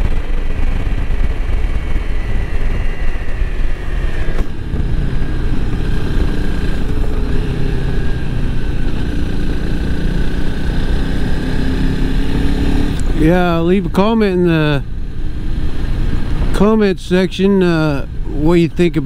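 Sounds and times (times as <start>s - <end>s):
wind rumble on microphone: 0.0s - 13.2s
motorcycle engine running: 0.0s - 19.0s.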